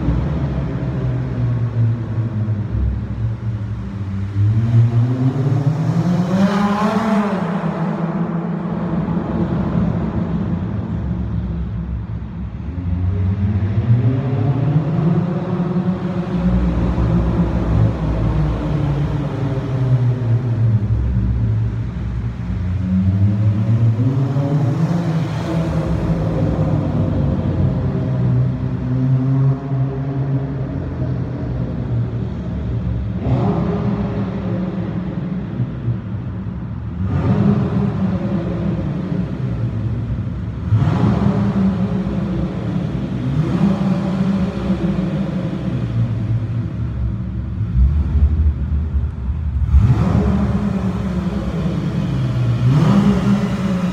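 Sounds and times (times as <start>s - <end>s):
car exhaust rumbling: 15.7s - 53.9s.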